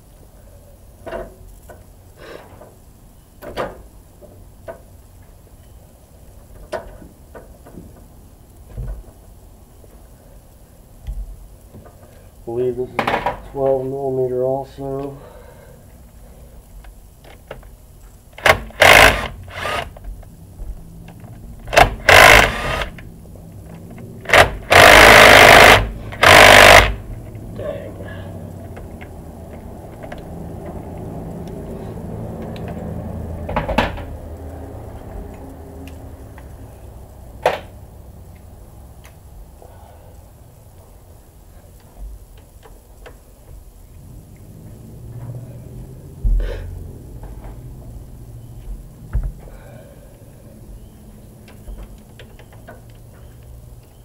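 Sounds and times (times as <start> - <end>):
impact driver hammering: 18.4 - 19.9, 21.7 - 23.0, 24.3 - 27.0.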